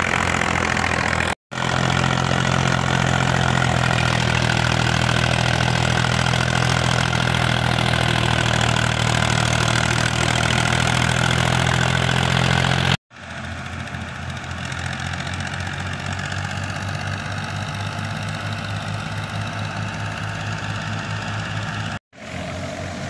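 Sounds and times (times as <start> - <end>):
thresher whirring: 0.0 - 13.0
tractor diesel engine running: 0.0 - 23.0.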